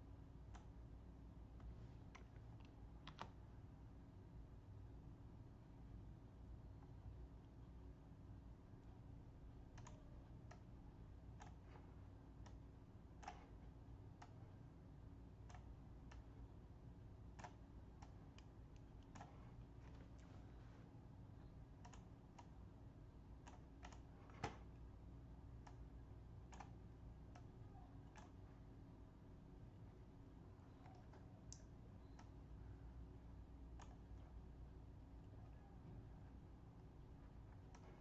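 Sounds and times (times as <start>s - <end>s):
steady low hum: 0.0s - 38.0s
computer mouse clicking: 0.4s - 0.8s, 1.6s - 3.5s, 9.6s - 10.7s, 11.3s - 11.8s, 12.4s - 14.5s, 15.4s - 16.4s, 17.2s - 20.4s, 21.6s - 24.9s, 25.5s - 28.5s, 30.6s - 32.6s, 33.4s - 34.5s, 37.2s - 38.0s.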